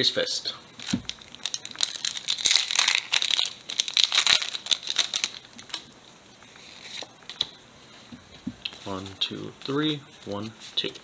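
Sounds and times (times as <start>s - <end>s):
foil wrapper crinkling torn open: 0.8s - 5.9s.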